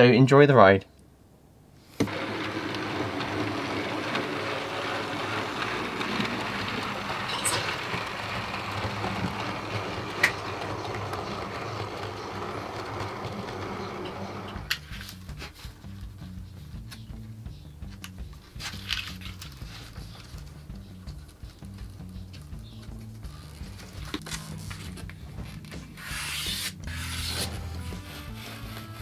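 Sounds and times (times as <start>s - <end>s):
model train running on track: 2.1s - 14.8s.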